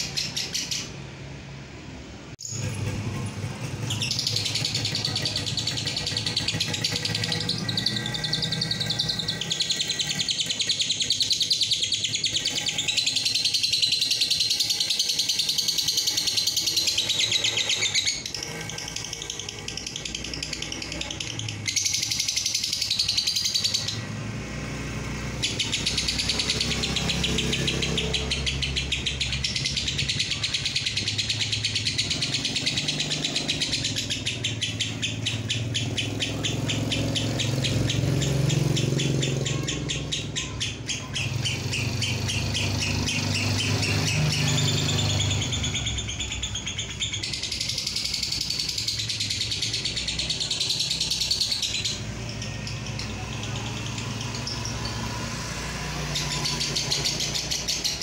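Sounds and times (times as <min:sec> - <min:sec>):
low engine-like rumble: 0:00.7 - 0:10.2
lovebird chattering: 0:02.4 - 0:24.2, 0:24.8 - 0:58.0.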